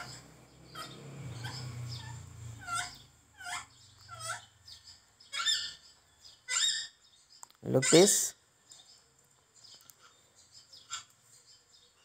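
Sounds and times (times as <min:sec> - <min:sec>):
animal high-pitched cries: 0:00.0 - 0:04.7, 0:05.3 - 0:07.0, 0:07.6 - 0:08.4.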